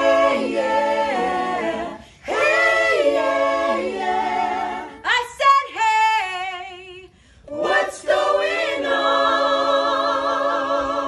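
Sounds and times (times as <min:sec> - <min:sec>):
people singing a cappella in harmony: 0:00.0 - 0:11.0.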